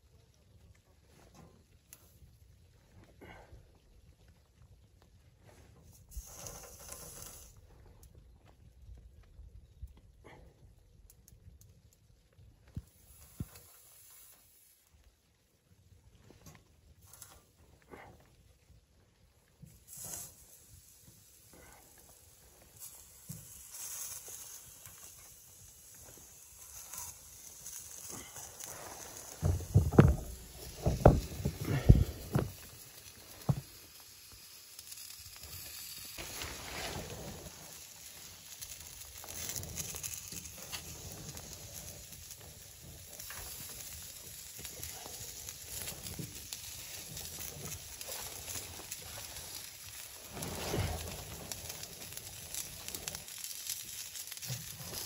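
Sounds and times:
chicken wings sizzling on grill: 0:05.5 - 0:08.3, 0:11.8 - 0:15.4, 0:16.3 - 0:55.0
plastic poncho rustling: 0:26.0 - 0:33.8, 0:35.8 - 0:41.4, 0:43.0 - 0:55.0.

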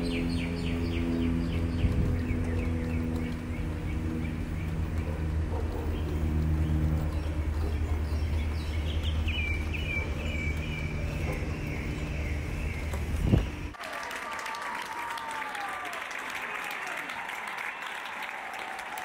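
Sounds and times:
low outdoor rumble: 0:00.0 - 0:13.8
crowd applauding: 0:13.7 - 0:19.0.

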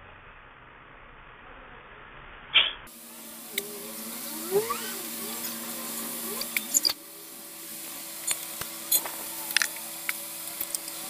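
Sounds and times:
steady low hum: 0:00.0 - 0:11.0
aerosol spray hissing: 0:02.9 - 0:11.0
short squeaks: 0:06.4 - 0:07.0.

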